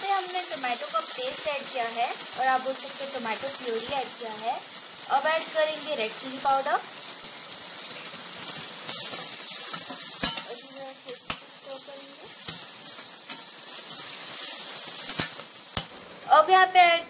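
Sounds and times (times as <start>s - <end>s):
food sizzling in hot oil: 0.0s - 17.0s
spatula knocking pan: 9.7s - 11.5s.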